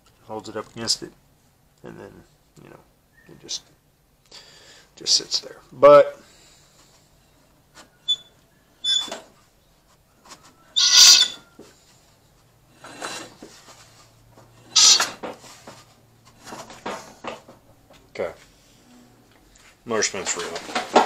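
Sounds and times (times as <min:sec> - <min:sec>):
hand scraping flywheel screen: 0:14.7 - 0:15.2.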